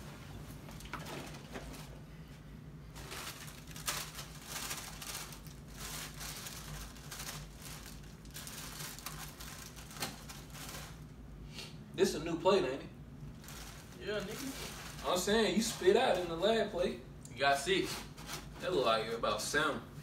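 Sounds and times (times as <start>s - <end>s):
plastic sleeve crinkling: 2.9s - 11.1s, 13.3s - 16.4s.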